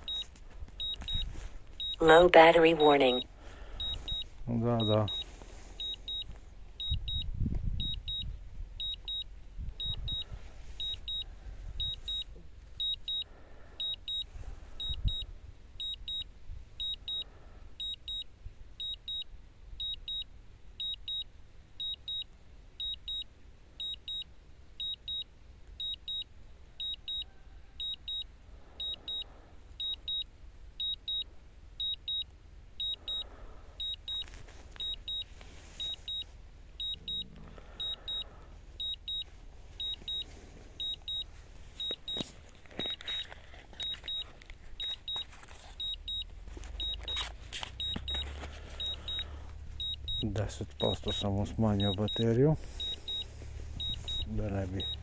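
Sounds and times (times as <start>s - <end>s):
short high double beeps: 0.8s - 9.2s, 35.8s - 39.2s, 39.8s - 42.2s, 43.8s - 55.0s.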